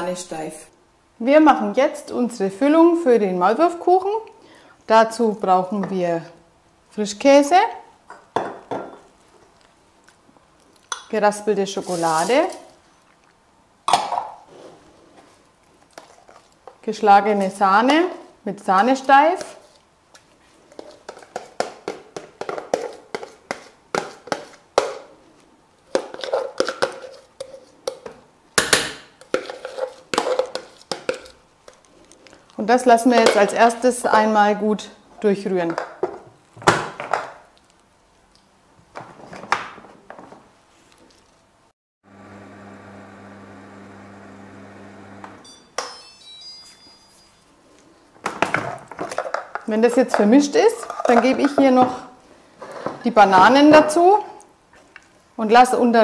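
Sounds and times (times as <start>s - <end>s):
scraping into metal bowl: 11.8s - 12.6s, 50.7s - 52.0s
kitchen machine motor humming: 42.1s - 45.4s.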